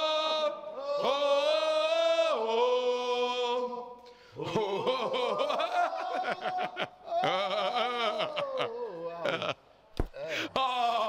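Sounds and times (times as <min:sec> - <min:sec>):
men chanting: 0:00.0 - 0:09.5
men laughing: 0:04.4 - 0:11.0.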